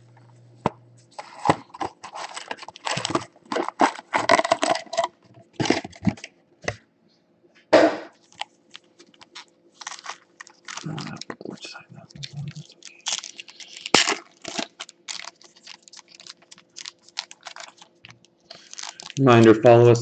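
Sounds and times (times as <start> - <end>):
foil packs crinkling and rustling: 1.1 - 6.3, 8.2 - 19.8.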